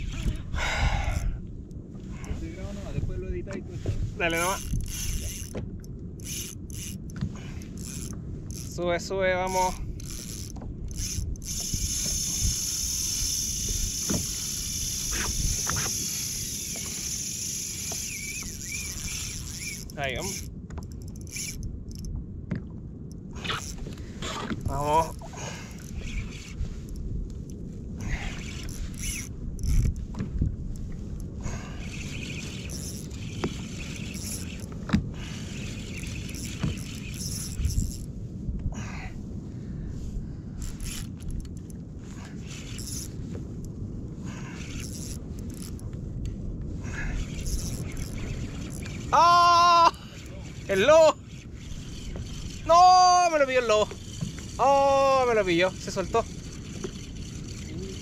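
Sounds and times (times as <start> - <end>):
water noise: 0.0 - 38.4, 40.0 - 58.0
wind on microphone: 0.0 - 58.0.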